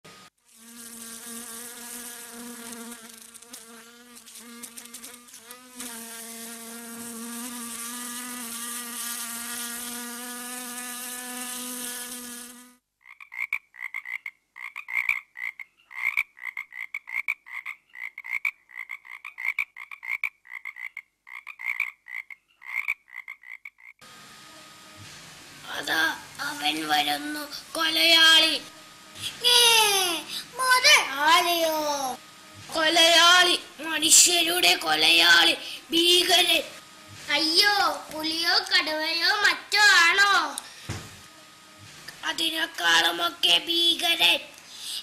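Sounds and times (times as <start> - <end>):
housefly buzzing: 0.1 - 12.8, 24.0 - 45.0
frog croaking: 13.0 - 24.0.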